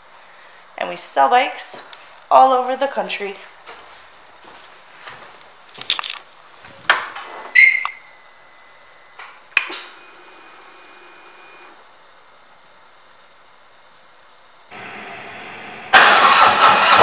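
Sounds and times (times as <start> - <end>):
fuel pump hum and whine: 6.4 - 17.0
short electronic beep: 7.6 - 8.8.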